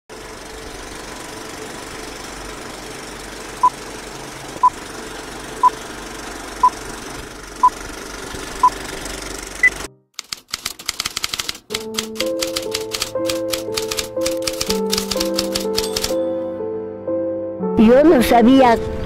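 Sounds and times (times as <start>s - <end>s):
film projector clatter: 6.6s - 16.2s.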